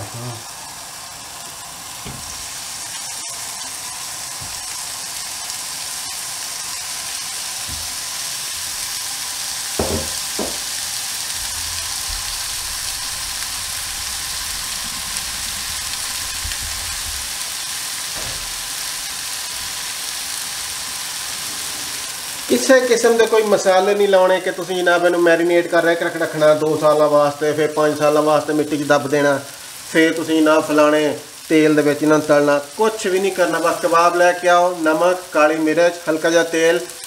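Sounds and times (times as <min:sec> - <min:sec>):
meat sizzling in grill pan: 0:00.0 - 0:37.0
soft knocks: 0:02.0 - 0:02.4, 0:09.8 - 0:10.7.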